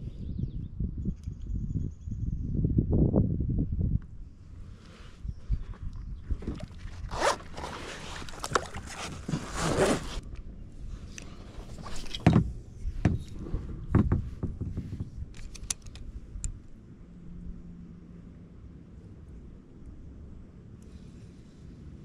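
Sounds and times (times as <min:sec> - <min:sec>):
zipper-like scrape: 0:07.0 - 0:10.2
knocks and clicks of gear: 0:11.1 - 0:16.7
heavy thumps: 0:12.1 - 0:15.2.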